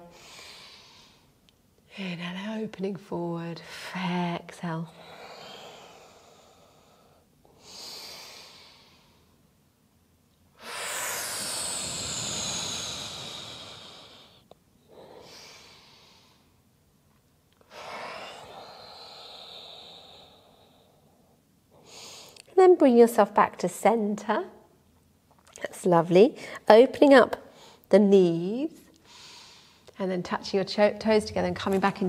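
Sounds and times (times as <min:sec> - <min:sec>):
woman breathing deeply: 0:00.0 - 0:01.4, 0:04.9 - 0:09.4, 0:10.6 - 0:16.6, 0:17.6 - 0:22.4, 0:29.0 - 0:29.9.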